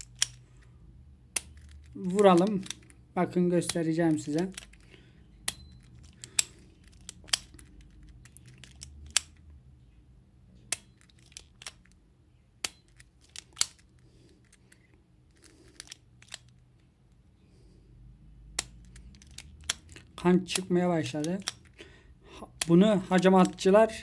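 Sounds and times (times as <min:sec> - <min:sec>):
lancing pen clicking: 0:03.6 - 0:09.5.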